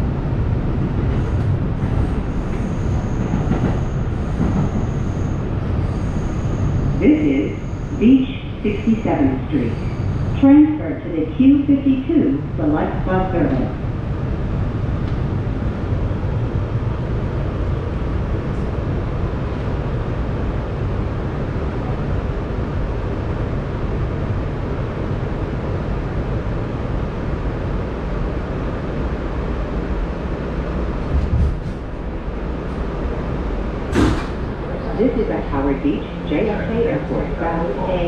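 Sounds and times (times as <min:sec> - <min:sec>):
subway car rumbling: 0:00.0 - 0:38.0
train clatter: 0:00.9 - 0:05.2.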